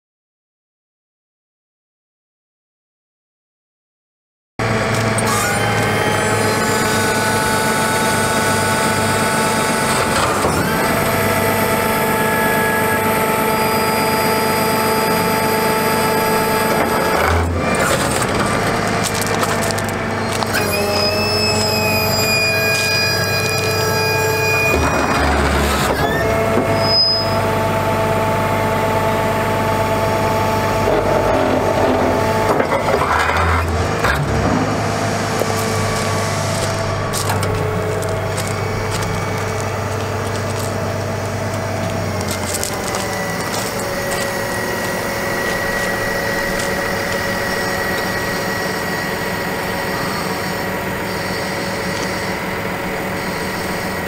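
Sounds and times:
hydraulic whine: 4.6s - 54.0s
truck engine running: 4.6s - 54.0s
gravel crunching and cracking: 16.0s - 26.8s, 30.8s - 53.7s.

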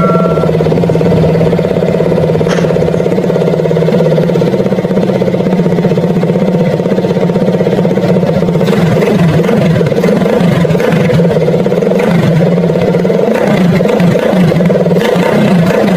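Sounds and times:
small motorcycle engine idling: 0.0s - 15.9s.

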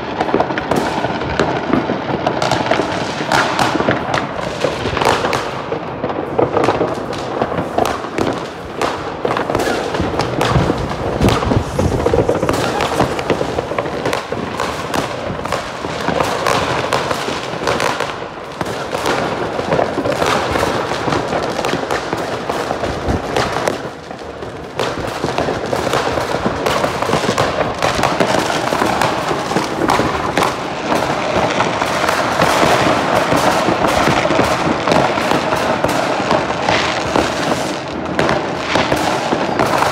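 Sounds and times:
fireworks crackling and banging: 0.0s - 39.9s.

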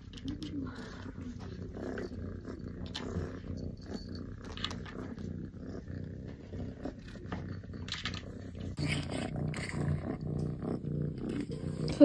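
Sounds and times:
kitten purring: 0.0s - 12.0s.

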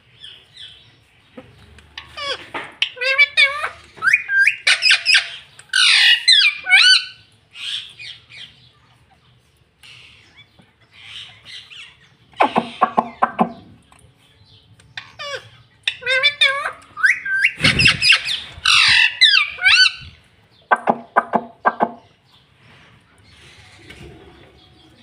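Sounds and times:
parakeet squawking and chattering: 1.4s - 9.2s, 9.8s - 13.9s, 14.8s - 22.2s.

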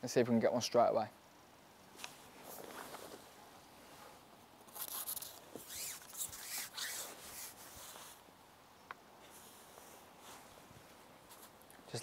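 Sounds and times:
clothing rustle: 1.9s - 8.2s, 9.2s - 11.7s
fishing pole being handled: 4.8s - 8.2s.

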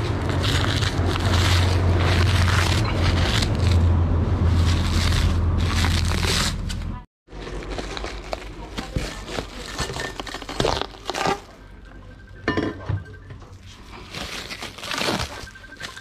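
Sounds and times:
bubble wrap crinkling: 0.0s - 11.8s, 13.5s - 16.0s
metal pipes clinking: 11.8s - 13.8s.

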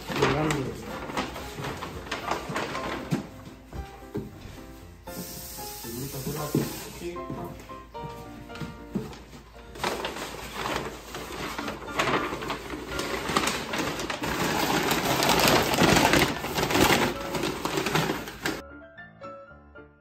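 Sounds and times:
stiff paper rustling: 0.0s - 18.6s.

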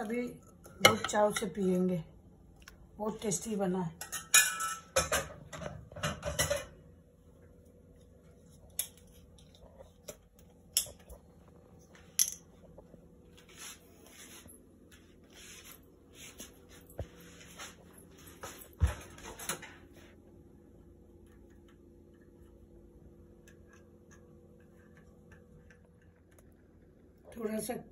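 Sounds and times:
ceramic dishes clinking on stone: 4.0s - 5.3s.

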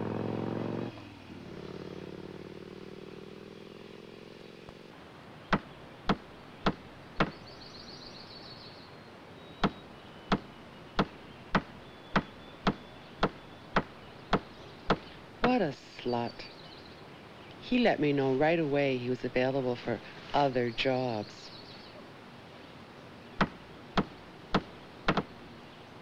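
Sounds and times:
motorcycle engine running: 0.0s - 4.9s
faint engine hum: 0.0s - 26.0s
hammer blows on wood: 9.6s - 15.6s.

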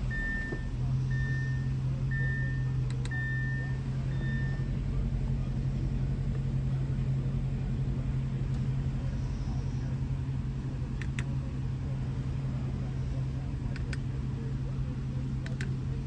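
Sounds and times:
car cabin hum and rumble: 0.0s - 16.0s
control knob button clicks: 11.0s - 11.3s.

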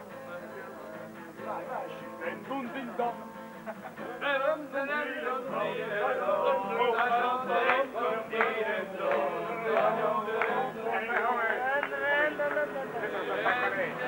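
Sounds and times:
men singing a chant-like song: 4.0s - 14.0s.

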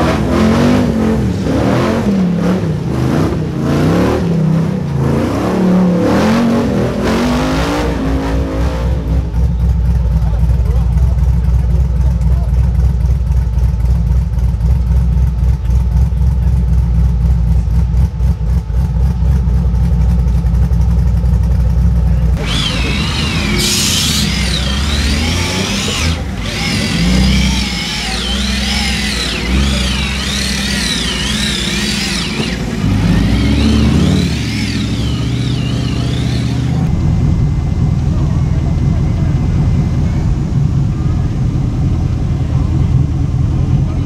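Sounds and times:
engine revving: 0.0s - 10.8s, 22.4s - 44.0s
deep low engine rumble: 0.0s - 44.0s.

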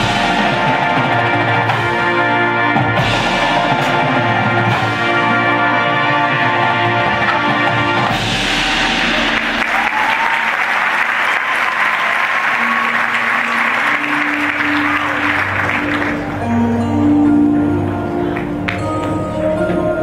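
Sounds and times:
band playing: 0.0s - 20.0s
crowd applauding and cheering: 8.8s - 16.5s.

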